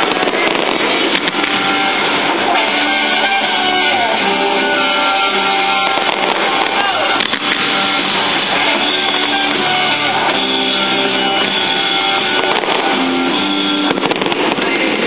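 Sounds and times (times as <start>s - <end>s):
firework pops: 0.0s - 1.7s, 5.8s - 7.8s, 12.3s - 14.8s
rock music with electric guitar: 0.0s - 15.0s.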